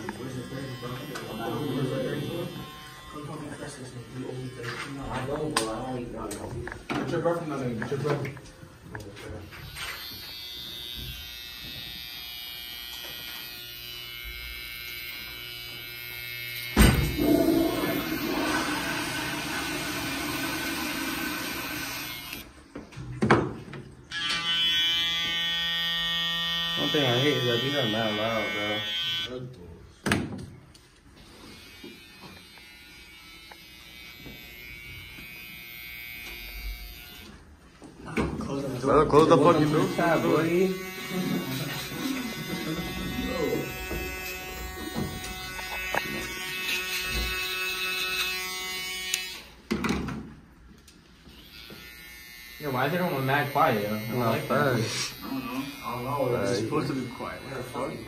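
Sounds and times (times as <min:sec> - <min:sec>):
hair trimmer buzzing: 0:00.0 - 0:05.7, 0:09.4 - 0:22.5, 0:24.1 - 0:29.4, 0:31.2 - 0:37.4, 0:39.2 - 0:49.7, 0:51.2 - 0:58.0
sudden loud noise: 0:16.8 - 0:19.2.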